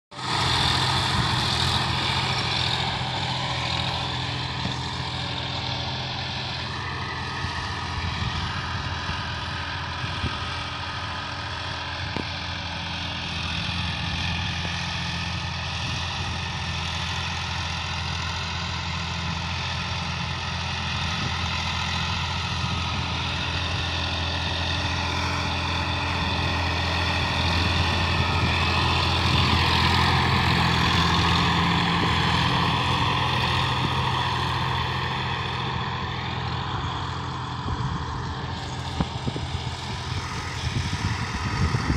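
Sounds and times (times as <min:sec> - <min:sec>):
tractor diesel engine running: 0:00.1 - 0:41.9.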